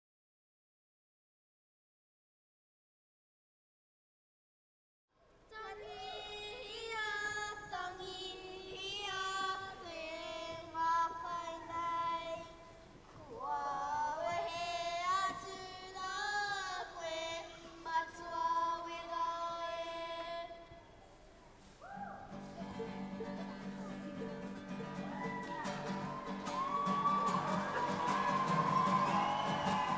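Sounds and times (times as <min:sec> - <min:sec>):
children singing in unison: 0:13.3 - 0:20.4.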